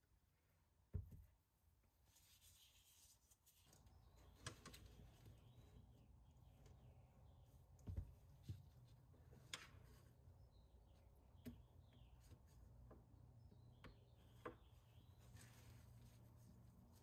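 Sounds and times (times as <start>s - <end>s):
faint bird chirps: 3.6s - 7.8s, 9.8s - 17.0s.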